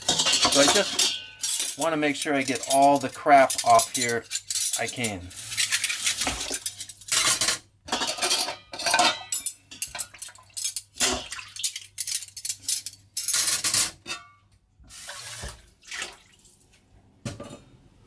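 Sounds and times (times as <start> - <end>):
dishes clattering in a sink: 0.0 - 1.8, 2.4 - 11.8, 17.3 - 17.7.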